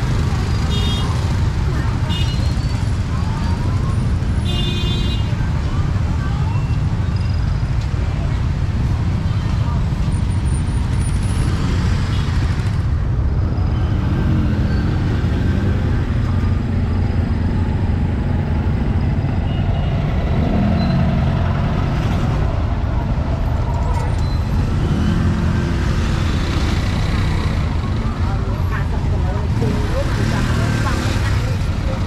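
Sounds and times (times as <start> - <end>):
street traffic: 0.0 - 32.0
people's voices: 0.2 - 10.6, 20.4 - 32.0.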